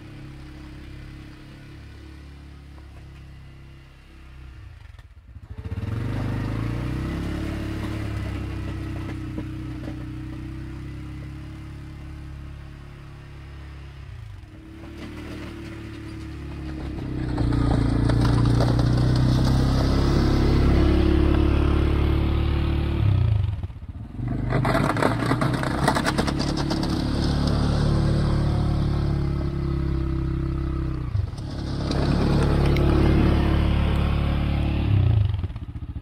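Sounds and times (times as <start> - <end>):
atv engine running under load: 14.3 - 36.0.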